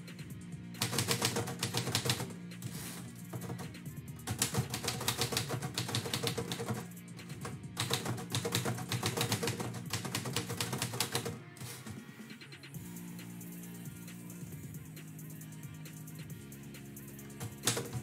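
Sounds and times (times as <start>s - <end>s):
background music: 0.0s - 18.0s
typewriter keystrokes: 0.8s - 2.3s, 4.3s - 6.8s, 7.8s - 11.4s, 17.4s - 18.0s
typewriter carriage return: 0.8s - 3.6s, 4.3s - 6.8s, 7.8s - 12.0s, 17.4s - 18.0s.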